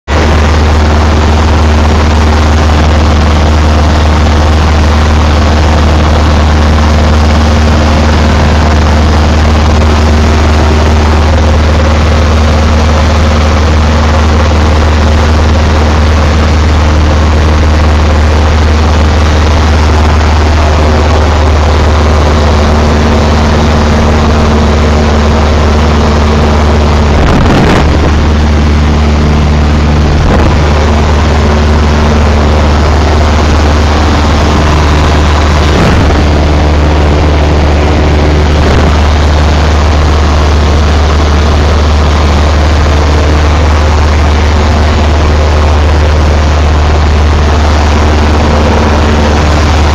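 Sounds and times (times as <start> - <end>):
propeller plane engine droning: 0.0 - 49.9.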